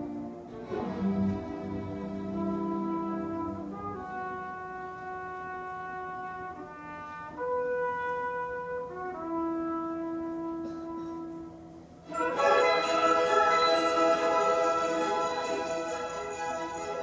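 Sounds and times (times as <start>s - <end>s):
orchestral strings: 0.0s - 6.8s, 12.0s - 17.0s
orchestral brass: 0.0s - 17.0s.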